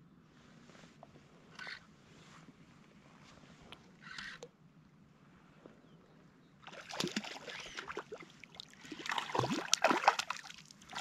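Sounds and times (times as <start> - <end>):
fish thrashing and splashing water: 6.7 - 11.0.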